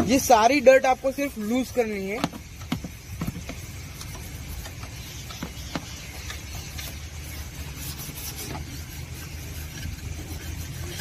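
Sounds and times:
toothbrush scrubbing plastic: 3.5 - 11.0.

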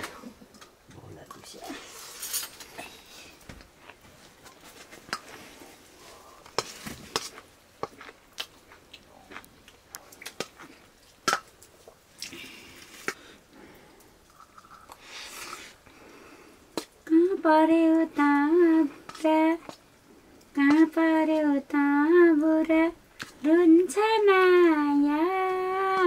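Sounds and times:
chewing: 6.4 - 13.2.

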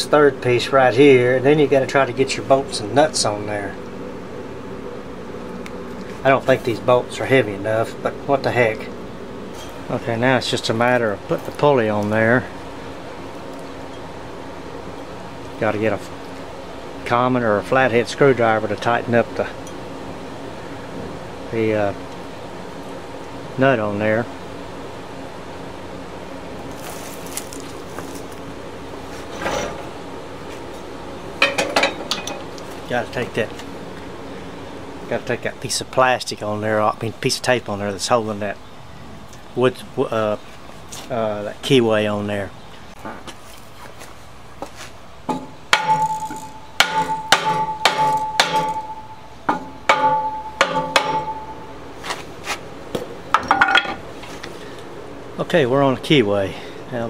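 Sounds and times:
steady background hiss: 0.0 - 57.0
metallic clanks on steel plate: 31.4 - 32.4
metallic ringing: 31.4 - 32.5, 45.3 - 51.9.

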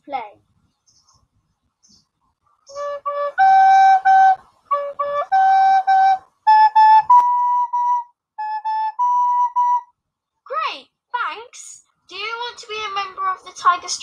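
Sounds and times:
recorder playing a simple tune: 2.7 - 9.9.

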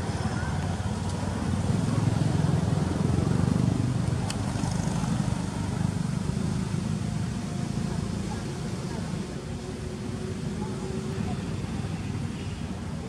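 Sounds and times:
engine running: 0.0 - 13.0.

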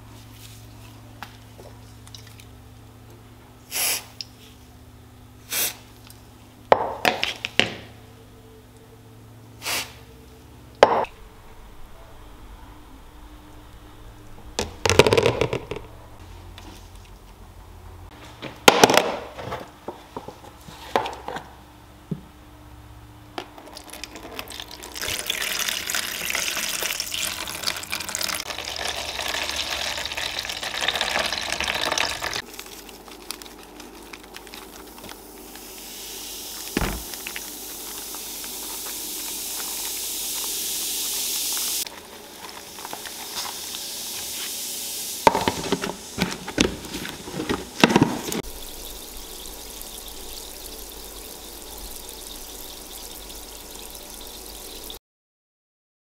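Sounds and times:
fizzing bubbling liquid: 23.5 - 41.9, 45.0 - 55.0
liquid pouring into tub: 23.6 - 41.8, 45.3 - 55.0.

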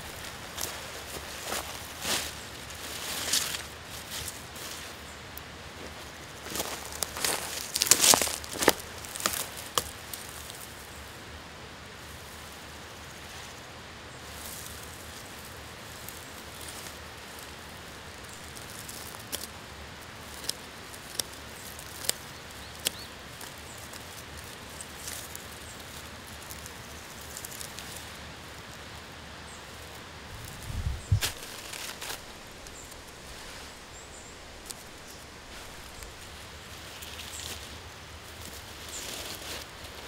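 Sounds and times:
rustling: 0.0 - 5.1, 5.8 - 10.8, 20.2 - 40.0
steady outdoor hiss: 0.0 - 40.0.

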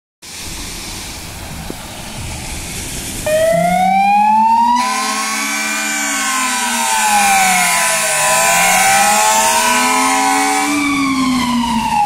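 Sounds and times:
wet-road traffic hiss: 0.2 - 12.0
truck engine revving: 0.4 - 12.0
fire engine siren wailing: 3.2 - 12.0
steady siren tone: 3.2 - 12.0.

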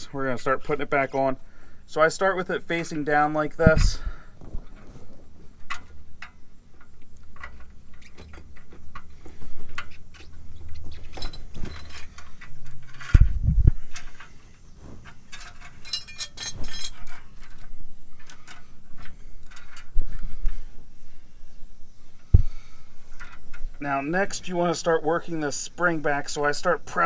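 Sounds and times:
metal clinking and jingling: 15.2 - 18.6.

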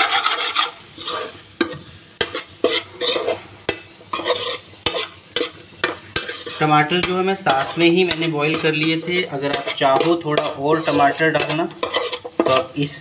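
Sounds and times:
food sizzling in a pan: 0.0 - 13.0
metal spatula knocking on pan: 7.0 - 8.6.

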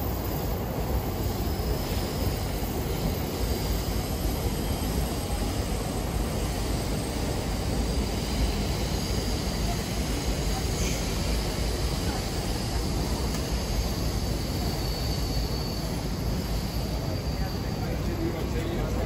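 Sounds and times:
busy street ambience rumble: 0.0 - 19.0.

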